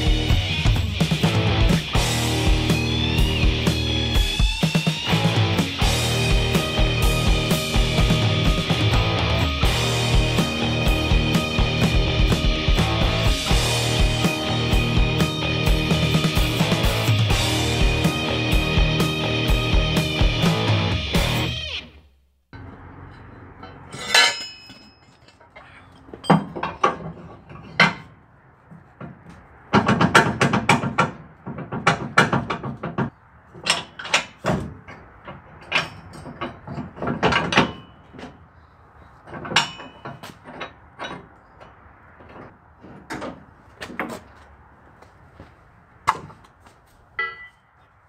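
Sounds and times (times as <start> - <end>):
metal tube clanking and knocking: 23.6 - 28.2, 29.0 - 38.4, 39.2 - 44.2.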